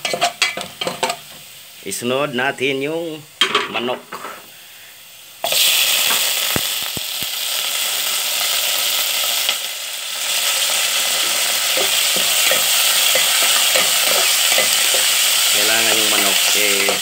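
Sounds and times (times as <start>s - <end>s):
chicken sizzling in hot oil: 5.1s - 17.0s.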